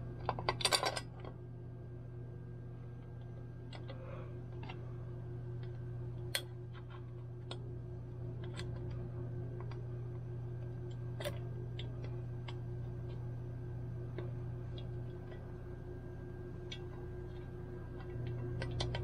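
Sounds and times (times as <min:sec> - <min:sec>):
steady low hum: 0:00.0 - 0:19.0
small mixer parts clicking: 0:00.2 - 0:01.4, 0:16.6 - 0:19.0.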